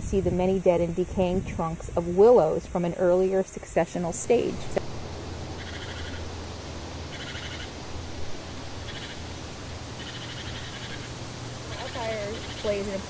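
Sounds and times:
steady low rumble: 0.0s - 13.0s
small bird trilling: 5.6s - 6.2s, 7.1s - 7.7s, 11.7s - 12.9s.

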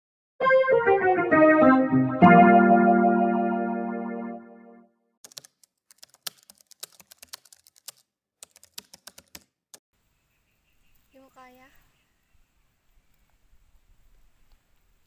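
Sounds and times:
electric piano chord: 0.4s - 4.8s
keyboard typing clicks: 5.2s - 9.5s.

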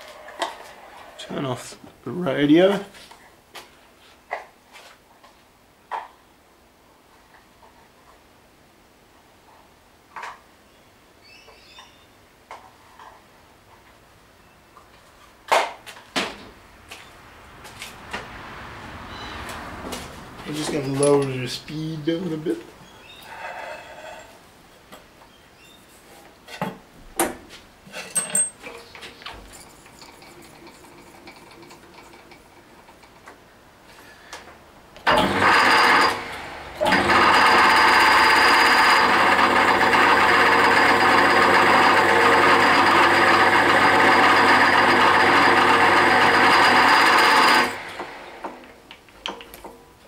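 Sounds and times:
lathe motor running: 35.1s - 48.6s.

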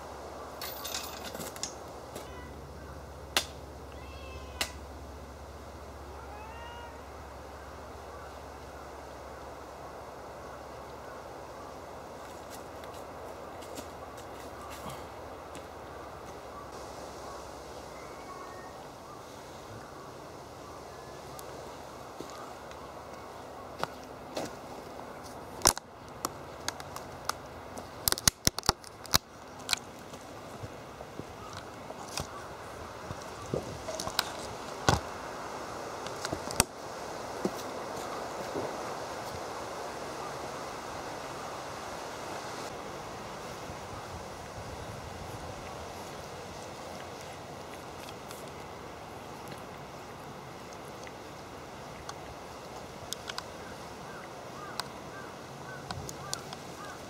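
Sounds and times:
cat meow: 3.9s - 4.8s, 6.1s - 7.0s.

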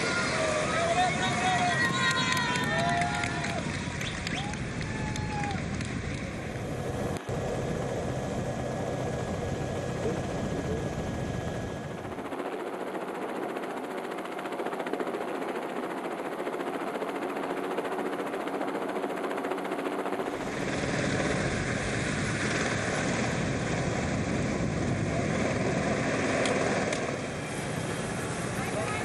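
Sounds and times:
vehicle engines: 0.0s - 12.1s, 20.3s - 29.0s.

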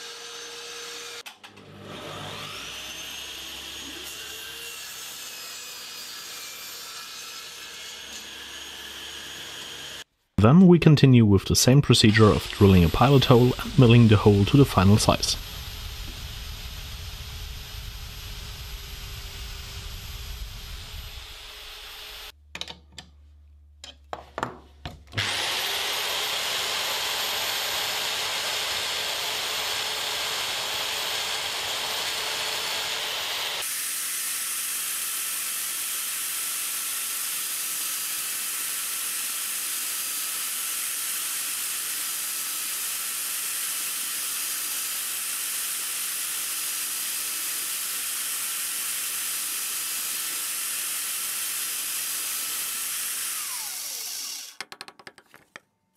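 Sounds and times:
router whining: 0.0s - 10.1s, 11.8s - 22.3s, 25.1s - 55.2s
drill press boring into plywood: 12.0s - 22.3s, 25.2s - 54.7s
knocks: 54.6s - 55.6s.

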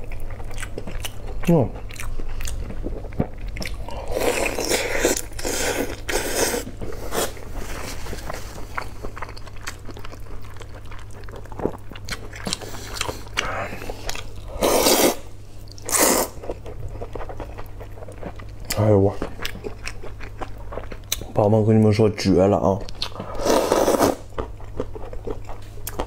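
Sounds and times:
wet biting and chewing: 0.0s - 7.4s, 8.2s - 21.3s, 22.8s - 26.0s
noodles slurping: 23.3s - 24.3s.

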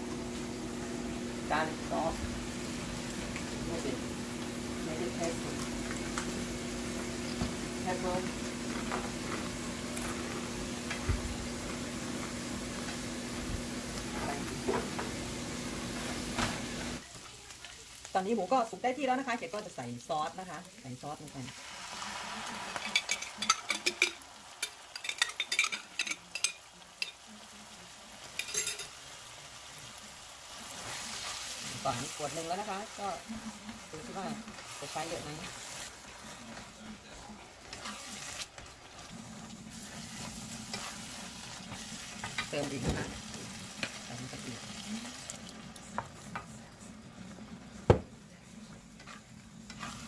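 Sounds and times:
meat sizzling in a frying pan: 0.0s - 46.8s, 49.3s - 50.0s
spatula scraping frying pan: 37.6s - 42.6s, 49.0s - 50.0s.

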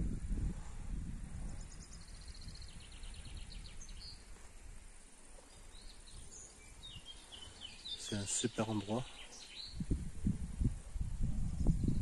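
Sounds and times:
songbirds singing: 1.2s - 10.1s, 11.4s - 12.0s.

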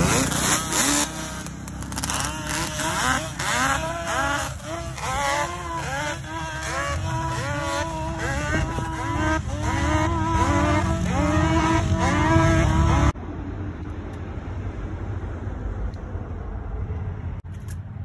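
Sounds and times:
atv engines revving: 0.0s - 13.2s.

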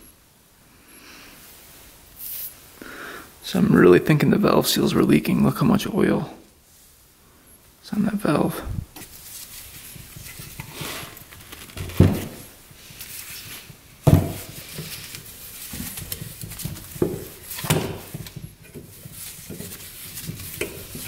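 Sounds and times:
rustling of parts on workbench: 8.9s - 21.0s.

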